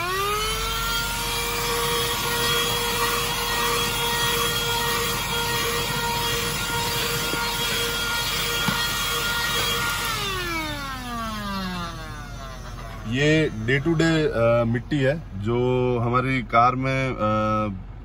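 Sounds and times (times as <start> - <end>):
vacuum cleaner motor whining: 0.0 - 14.0.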